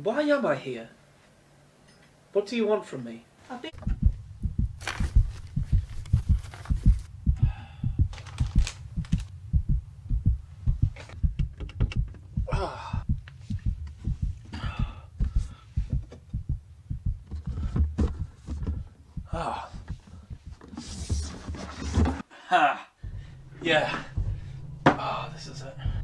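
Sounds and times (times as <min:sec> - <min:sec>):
fast low heartbeat-like thudding: 0:03.8 - 0:20.6, 0:23.0 - 0:26.0.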